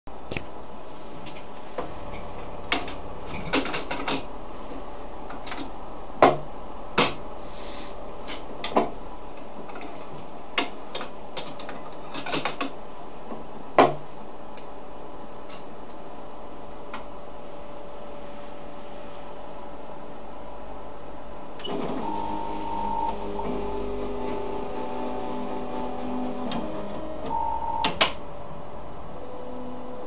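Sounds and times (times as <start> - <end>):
machine hum: 0.1 - 30.0
mechanism clicks and clacks: 1.3 - 4.3, 9.7 - 12.8.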